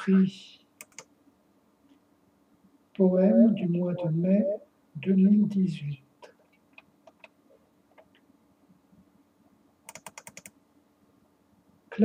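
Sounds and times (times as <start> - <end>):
sharp clicks: 0.8 - 1.1, 9.9 - 10.6.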